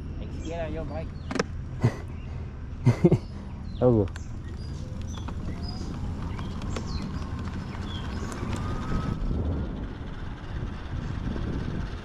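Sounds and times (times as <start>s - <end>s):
wind rushing over microphone: 4.3s - 12.0s
electric motor whine: 4.4s - 12.0s.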